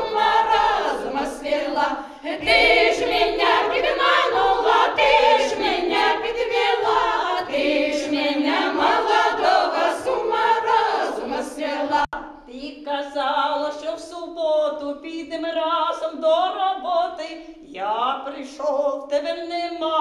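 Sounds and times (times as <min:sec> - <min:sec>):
women's choir singing folk song: 0:00.0 - 0:12.2.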